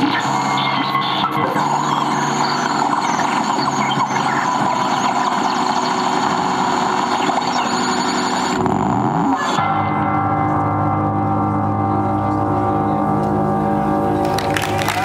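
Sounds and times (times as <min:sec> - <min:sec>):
grinding electronic noise: 0:00.0 - 0:15.0.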